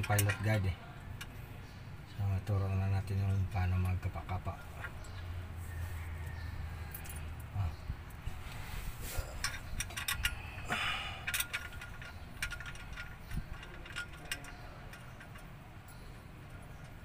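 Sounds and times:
metallic clicks and rattles: 0:00.0 - 0:01.4, 0:09.4 - 0:17.0.

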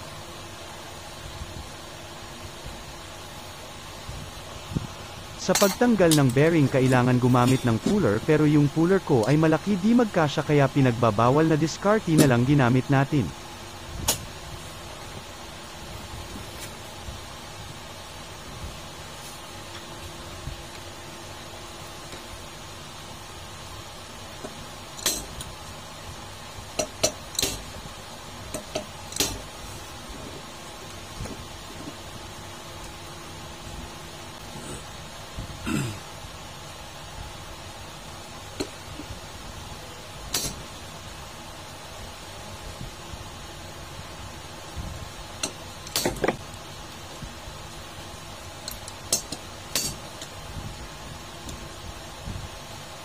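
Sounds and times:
steady low hum: 0:00.0 - 0:53.0
metal tools clinking on bearing: 0:05.5 - 0:06.4.

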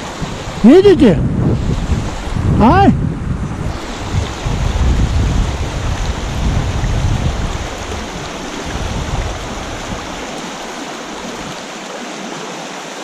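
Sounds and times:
wind rumble on microphone: 0:00.0 - 0:11.7
river rapids rushing over stones: 0:00.0 - 0:13.0.

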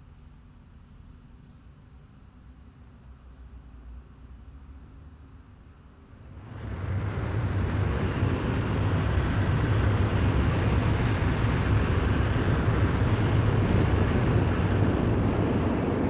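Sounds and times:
aircraft engine drone: 0:06.2 - 0:16.0.

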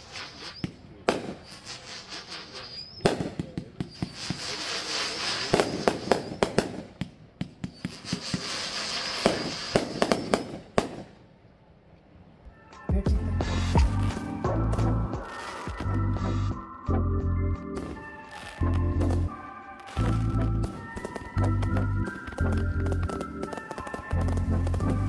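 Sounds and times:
firework shots thumping: 0:00.0 - 0:01.6, 0:02.5 - 0:11.2
screeching firework tails: 0:00.0 - 0:06.9, 0:07.6 - 0:11.0, 0:13.4 - 0:16.6, 0:17.8 - 0:25.0
firework bursts cracking: 0:00.0 - 0:11.3, 0:13.4 - 0:16.6, 0:17.8 - 0:25.0.

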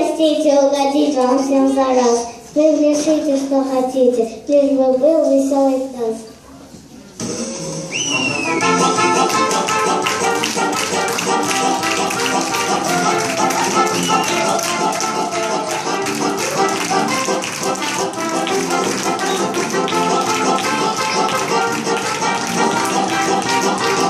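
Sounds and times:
upbeat dance music: 0:08.0 - 0:24.0.

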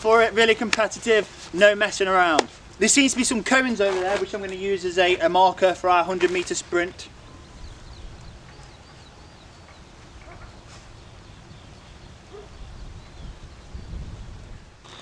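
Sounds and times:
faint birds chirping: 0:04.2 - 0:15.0.

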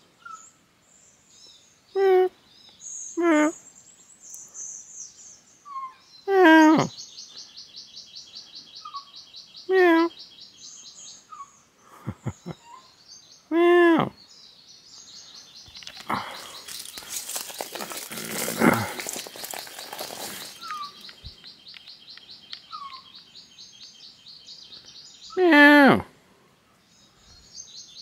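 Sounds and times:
rapid high chirping: 0:15.6 - 0:23.9
rustling and handling noise: 0:15.7 - 0:21.9.

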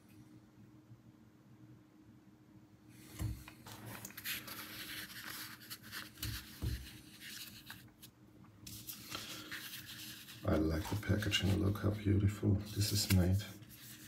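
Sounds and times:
packaging rustling: 0:03.2 - 0:08.0.

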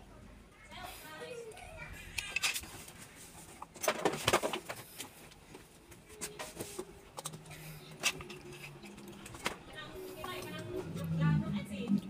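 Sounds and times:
small tools clicking and knocking: 0:02.1 - 0:02.7.

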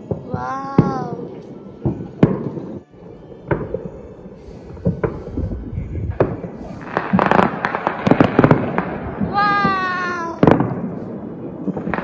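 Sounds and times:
fireworks bangs echoing: 0:00.0 - 0:12.0
low rumble of explosions: 0:03.5 - 0:12.0.

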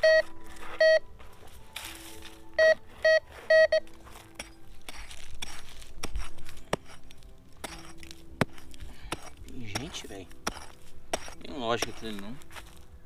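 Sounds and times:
metal detector beeps: 0:00.0 - 0:01.1, 0:02.6 - 0:04.0
hand pick digging into dirt: 0:01.4 - 0:02.4, 0:03.3 - 0:13.0.

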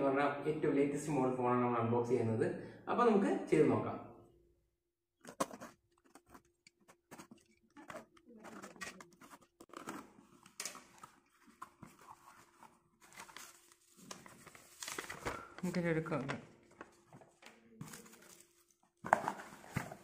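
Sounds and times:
paper crinkling: 0:05.2 - 0:20.0
packing tape ripping: 0:07.1 - 0:12.3.

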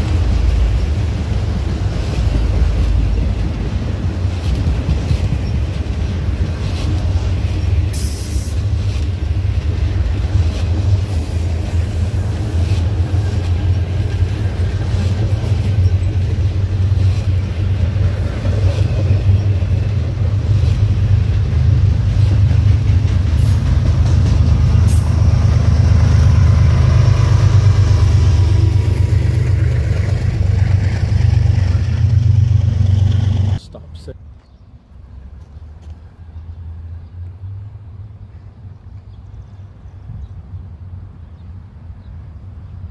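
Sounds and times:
wheels clicking over rail joints: 0:00.0 - 0:33.6
freight train wheels rumbling: 0:00.0 - 0:42.9.

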